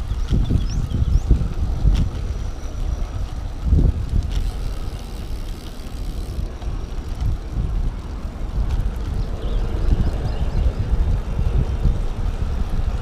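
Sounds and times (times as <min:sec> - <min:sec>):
bike tyres rolling on concrete: 0:00.0 - 0:13.0
wind buffeting microphone: 0:00.0 - 0:13.0.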